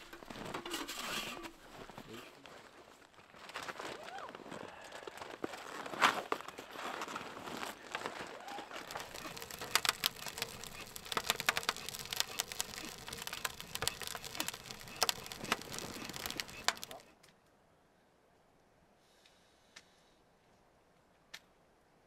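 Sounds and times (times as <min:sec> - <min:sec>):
wood fire crackling and popping: 0:05.2 - 0:17.2.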